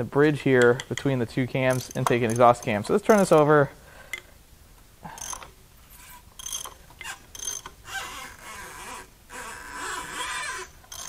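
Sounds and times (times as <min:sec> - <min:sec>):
ratchet turning engine: 0:01.7 - 0:02.7, 0:05.2 - 0:05.5, 0:06.4 - 0:07.7
squealing valvetrain: 0:05.2 - 0:11.0.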